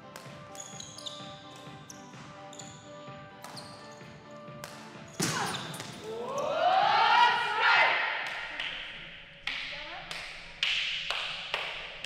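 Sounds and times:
background music with held notes: 0:00.0 - 0:05.3
volleyball hits and bounces: 0:00.1 - 0:01.8, 0:03.4 - 0:03.8, 0:04.5 - 0:06.1.

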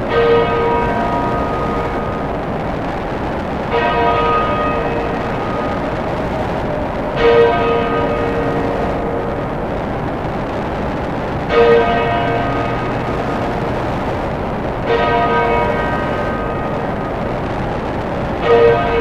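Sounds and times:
dense noise drone: 0:00.0 - 0:19.0
bell tolling: 0:03.7 - 0:09.8, 0:14.8 - 0:17.5.

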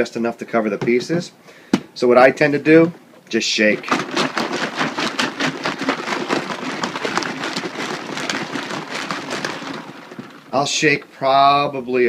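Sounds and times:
water sloshing in plastic pitcher: 0:03.2 - 0:10.8
plastic parts rattling: 0:03.7 - 0:10.7.

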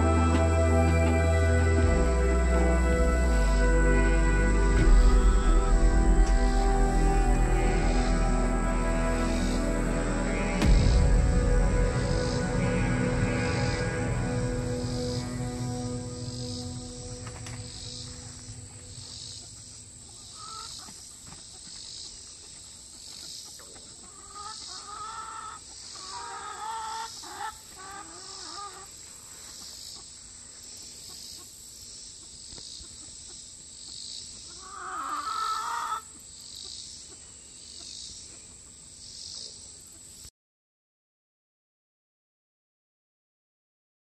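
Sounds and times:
chickens clucking: 0:19.1 - 0:30.2, 0:34.4 - 0:36.2.

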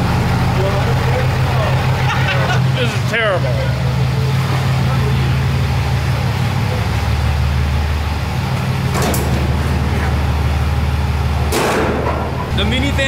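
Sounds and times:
diesel truck engine idling: 0:00.0 - 0:13.0.

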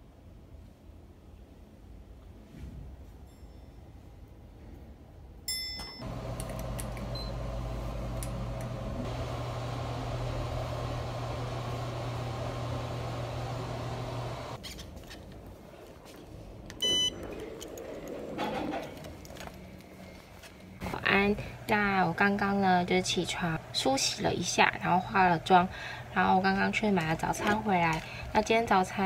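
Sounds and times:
elevator car humming: 0:06.0 - 0:14.6
card reader electronic beep: 0:07.0 - 0:07.5, 0:16.8 - 0:17.2
elevator chime: 0:07.0 - 0:07.6, 0:16.8 - 0:17.2.

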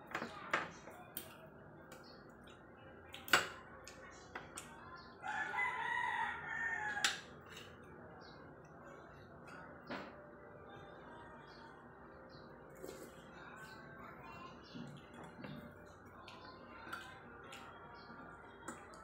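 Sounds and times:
rooster crowing: 0:05.2 - 0:07.1.

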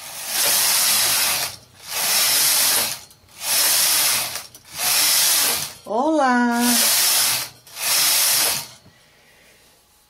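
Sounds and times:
knitting machine carriage rattling: 0:00.0 - 0:05.8, 0:06.6 - 0:08.8.

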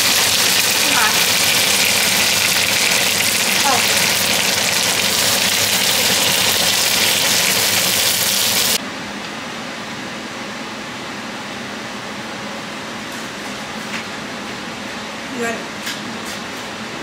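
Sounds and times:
asparagus sizzling in a skillet: 0:00.0 - 0:08.8.

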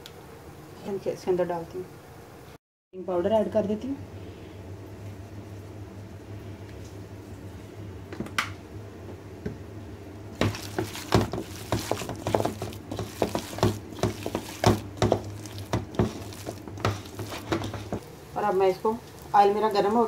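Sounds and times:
steady low hum: 0:00.0 - 0:20.0
hand mixing batter in steel bowl: 0:10.3 - 0:20.0.

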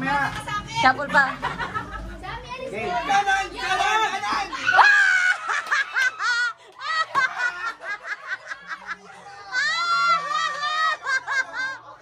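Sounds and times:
people shouting: 0:03.6 - 0:06.5
children and adults laughing: 0:03.6 - 0:12.0.

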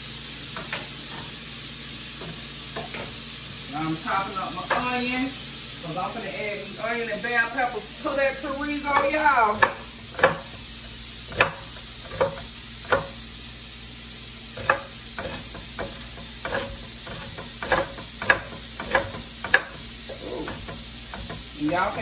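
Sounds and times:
meat sizzling in a pot: 0:00.0 - 0:22.0
knife chopping on wooden board: 0:09.0 - 0:10.6, 0:11.3 - 0:13.2, 0:14.6 - 0:19.8.

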